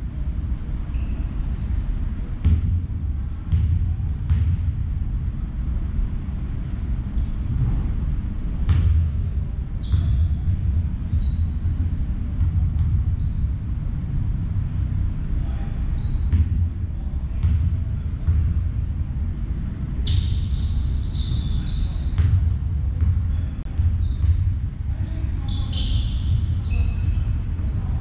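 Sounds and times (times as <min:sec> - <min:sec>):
steady low rumble: 0:00.0 - 0:21.1, 0:22.1 - 0:28.0
sneakers squeaking on floor: 0:00.3 - 0:05.0, 0:06.6 - 0:07.9, 0:08.7 - 0:13.8, 0:14.6 - 0:16.6, 0:19.9 - 0:28.0
basketball bouncing: 0:02.4 - 0:04.8, 0:08.6 - 0:13.6, 0:16.2 - 0:18.7, 0:22.2 - 0:25.1.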